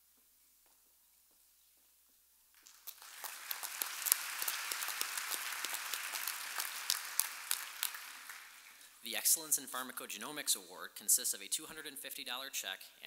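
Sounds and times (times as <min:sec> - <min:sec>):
audience applauding: 0:02.6 - 0:09.5.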